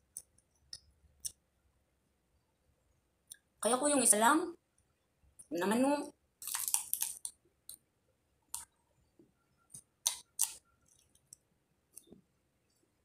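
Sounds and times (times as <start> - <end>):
crunchy vegetable chewing: 6.4 - 7.8, 10.0 - 11.4.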